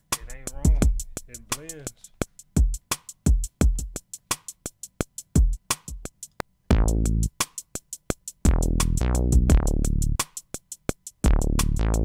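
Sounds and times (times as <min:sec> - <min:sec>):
hi-hat ticks: 0:00.0 - 0:06.5, 0:07.2 - 0:11.8
kick drum hits: 0:00.6 - 0:01.1
heavy sliding bass notes: 0:06.7 - 0:07.3, 0:08.5 - 0:10.2, 0:11.3 - 0:12.0.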